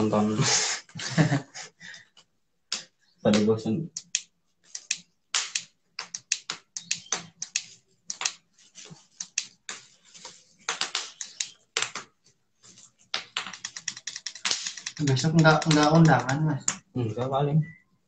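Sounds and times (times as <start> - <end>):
clicking and tapping by hand: 2.7 - 8.4, 9.1 - 12.2, 13.1 - 16.9.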